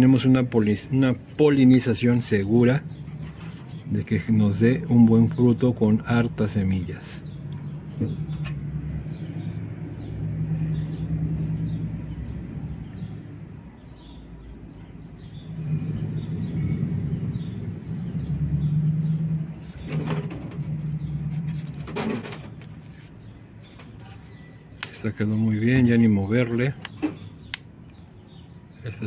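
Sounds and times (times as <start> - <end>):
low engine hum: 7.2 - 13.7, 14.3 - 24.0.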